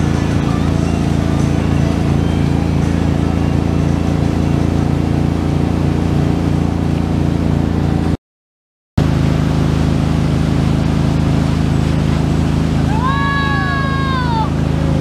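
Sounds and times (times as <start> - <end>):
boat engine running: 0.0 - 8.2, 9.0 - 15.0
churning water: 0.0 - 8.2, 9.0 - 15.0
wind: 9.0 - 15.0.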